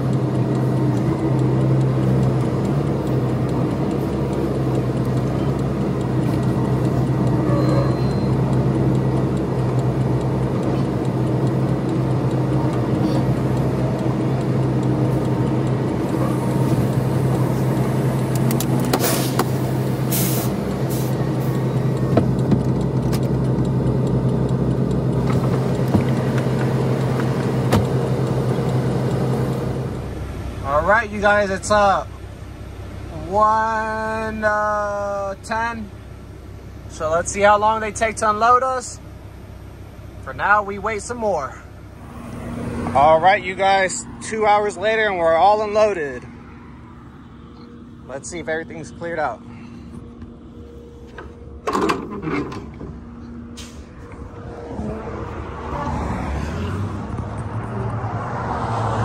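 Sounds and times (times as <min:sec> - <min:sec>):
truck diesel engine idling: 0:00.0 - 0:55.8
short hisses and clicks: 0:19.0 - 0:21.2.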